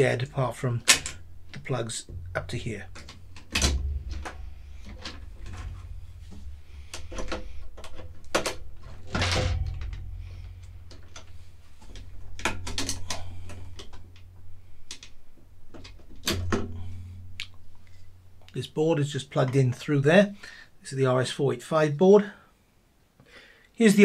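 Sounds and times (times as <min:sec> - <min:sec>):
steady low hum: 0:00.0 - 0:20.8
clicks and knocks of connectors: 0:00.8 - 0:17.6.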